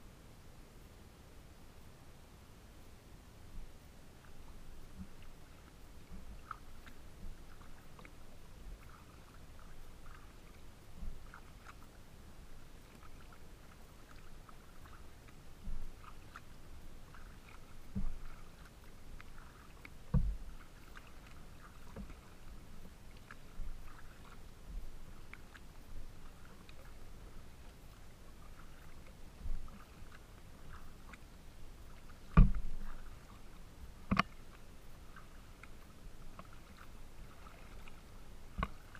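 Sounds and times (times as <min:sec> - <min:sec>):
water lapping against plastic hull: 0:03.6 - 0:38.9
thumps against hull: 0:17.9 - 0:18.4, 0:20.1 - 0:20.6, 0:32.3 - 0:33.0.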